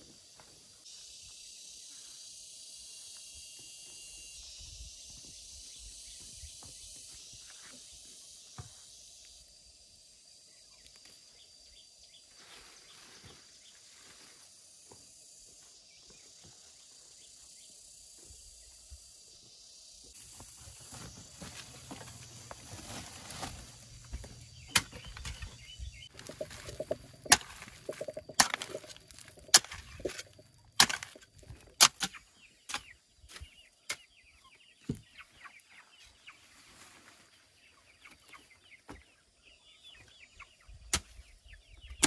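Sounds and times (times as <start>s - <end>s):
high-pitched insect chorus: 0.0s - 33.4s.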